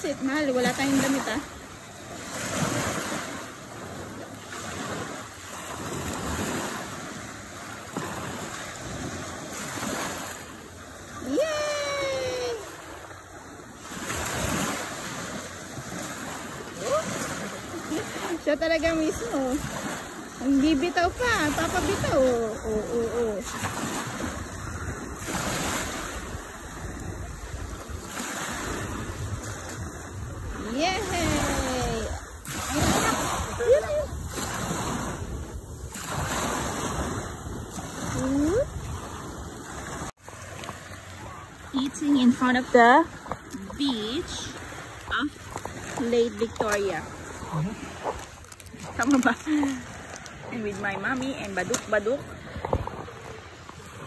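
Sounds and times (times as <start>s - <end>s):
waves washing onto sandy shore: 0.0s - 54.0s
wind on microphone: 11.1s - 54.0s.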